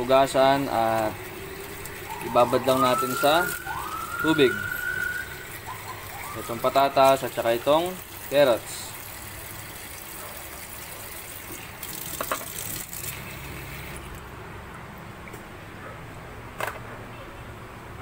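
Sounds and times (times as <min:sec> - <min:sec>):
tap water running into bowl: 0:00.0 - 0:14.2.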